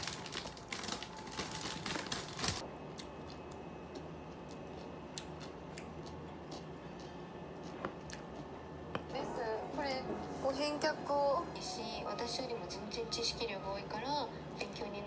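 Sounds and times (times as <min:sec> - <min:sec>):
paper sachet tearing: 0:00.0 - 0:02.6.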